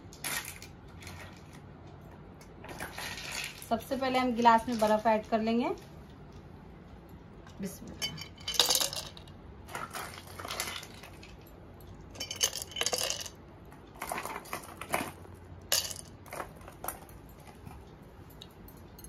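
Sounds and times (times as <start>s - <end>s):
ice cubes clinking in a glass: 8.1s - 11.4s, 12.2s - 13.4s.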